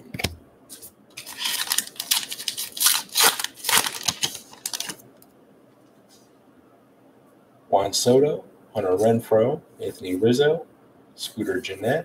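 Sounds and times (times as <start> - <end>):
wrapper tearing and crinkling: 1.2 - 5.0.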